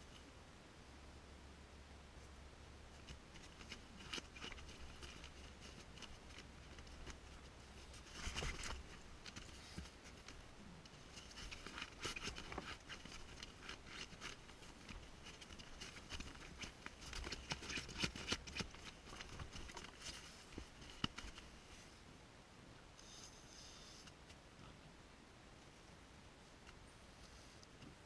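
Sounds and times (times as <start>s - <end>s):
rustling in a tent: 2.0s - 22.2s.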